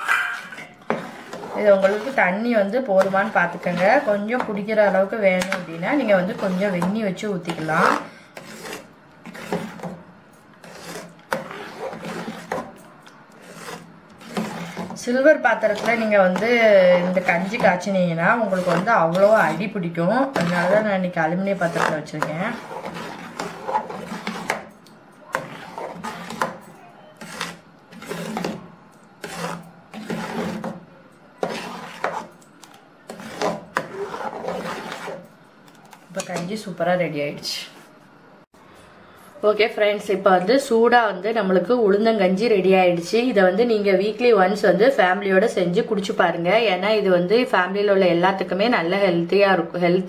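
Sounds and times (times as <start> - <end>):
ladle scraping a pot: 0.0 - 10.0, 10.6 - 24.7, 25.3 - 30.8, 31.4 - 32.4, 33.1 - 35.3.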